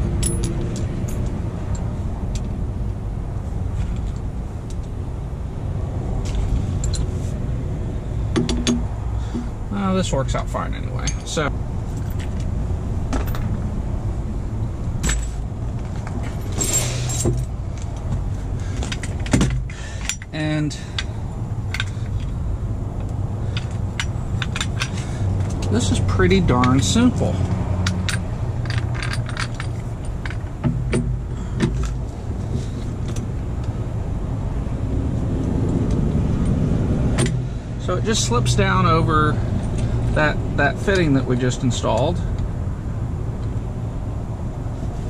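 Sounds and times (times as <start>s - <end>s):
steady low rumble: 0.0s - 45.0s
metal tools clinking: 0.2s - 1.9s, 10.9s - 12.4s, 15.0s - 18.1s, 23.4s - 27.2s, 27.8s - 32.0s
metal clicks and knocks: 8.3s - 9.5s, 15.0s - 20.4s, 23.0s - 25.8s, 26.5s - 32.0s.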